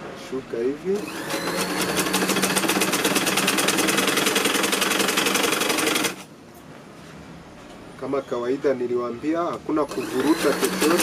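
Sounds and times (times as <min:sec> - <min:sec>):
sewing machine stitching: 0:01.0 - 0:06.3, 0:09.9 - 0:11.0.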